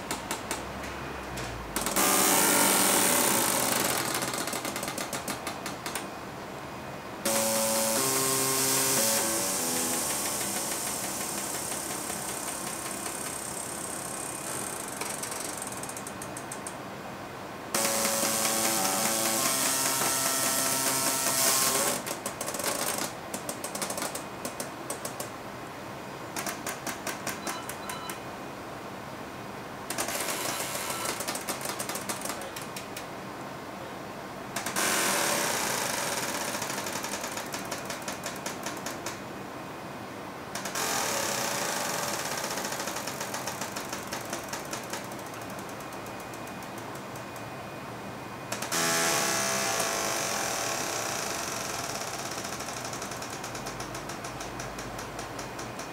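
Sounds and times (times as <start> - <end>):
compressed air hissing: 7.3 - 12.5.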